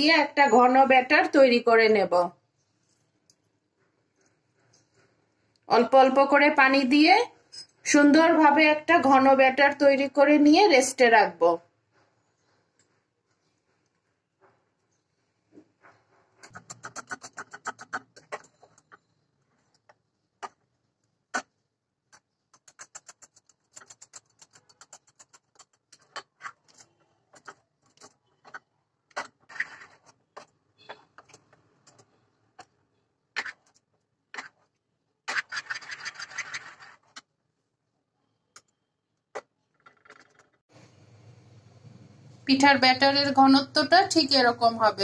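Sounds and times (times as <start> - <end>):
metal spoon stirring batter in bowl: 15.7 - 37.3.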